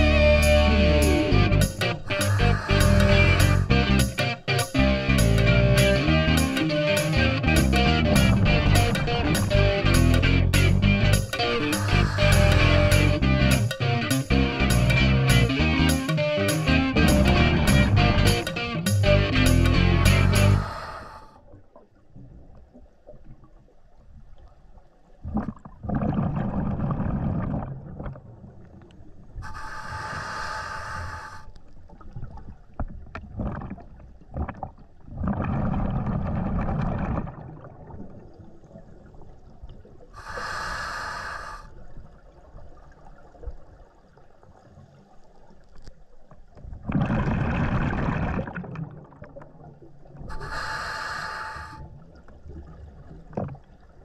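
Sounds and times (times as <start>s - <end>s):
regulator hissing on inhale: 1.6s - 3.7s, 11.7s - 13.2s, 20.1s - 21.4s, 29.4s - 31.7s, 40.2s - 41.8s, 50.3s - 52.0s
exhaled bubbles rumbling underwater: 7.4s - 13.2s, 20.0s - 40.9s, 41.6s - 54.0s.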